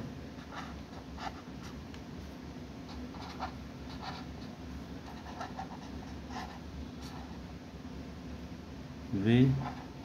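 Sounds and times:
faint low hum: 0.0s - 10.0s
pen scratching on paper: 2.9s - 7.4s.

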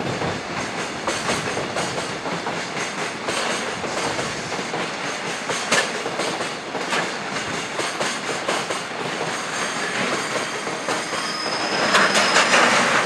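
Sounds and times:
high-pitched wheel squeal: 9.4s - 13.0s.

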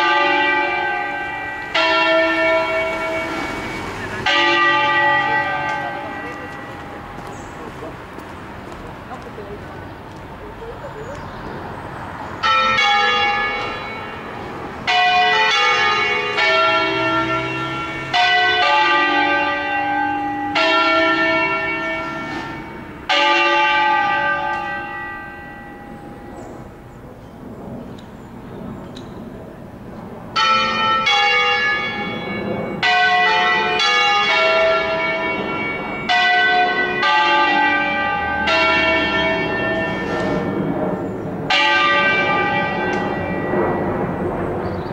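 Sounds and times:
church bells ringing: 0.0s - 11.2s, 12.1s - 27.8s, 28.6s - 44.9s.

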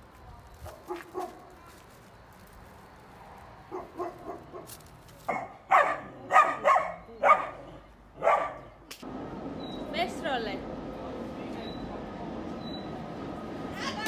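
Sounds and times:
dog barking: 0.7s - 1.5s, 3.7s - 4.7s, 5.3s - 8.7s.

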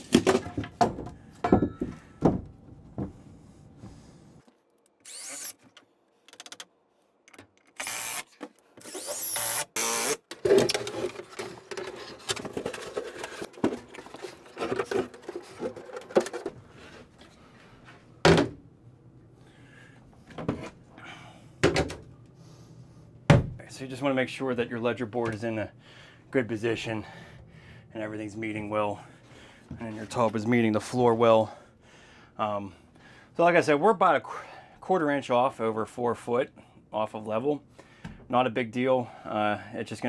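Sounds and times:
knocks and handling of wood: 0.0s - 3.2s, 10.3s - 18.6s
power tool running: 5.0s - 5.6s, 7.8s - 10.3s.

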